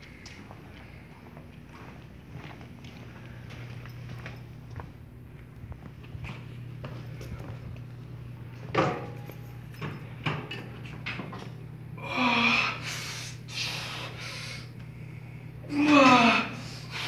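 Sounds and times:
steady low hum: 0:00.0 - 0:17.0
hard exhaled breaths: 0:12.0 - 0:17.0
man grunting: 0:15.7 - 0:16.8.

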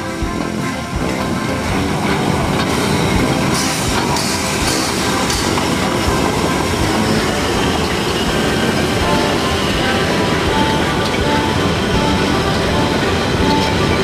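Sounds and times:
loud steam hisses: 0:00.0 - 0:14.0
steam locomotive passing: 0:00.0 - 0:14.0.

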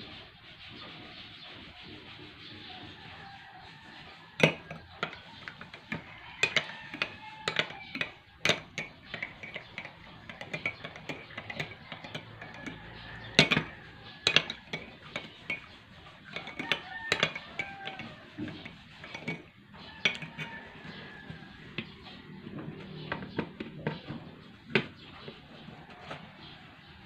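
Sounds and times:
metal spoon clinking on plate: 0:04.4 - 0:15.7, 0:16.3 - 0:20.7.

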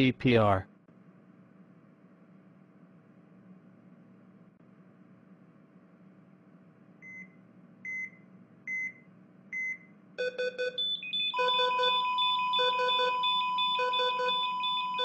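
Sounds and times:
patient monitor beeping: 0:07.9 - 0:15.0
rapid multi-pitched alarm beeps: 0:09.6 - 0:15.0
steady flatline tone: 0:11.0 - 0:15.0.

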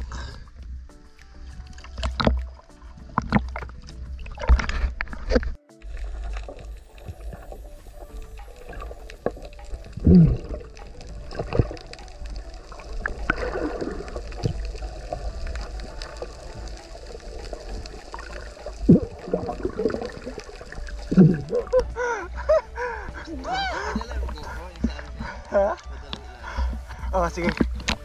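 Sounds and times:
water gurgling underwater: 0:01.8 - 0:25.8
diver exhaling bubbles: 0:10.0 - 0:10.7, 0:18.9 - 0:20.4, 0:21.0 - 0:22.0.

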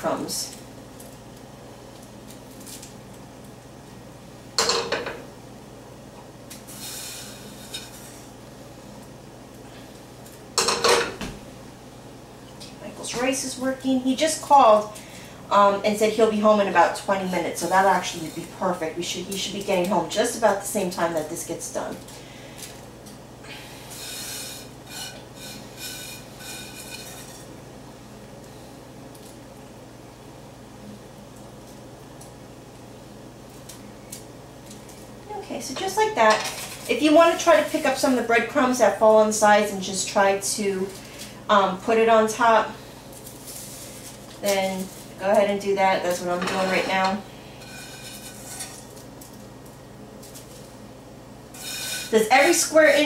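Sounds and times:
low steady hum: 0:00.0 - 0:53.0
scraping and clinking in frying pan: 0:24.0 - 0:27.5, 0:46.4 - 0:48.9, 0:51.6 - 0:52.2.

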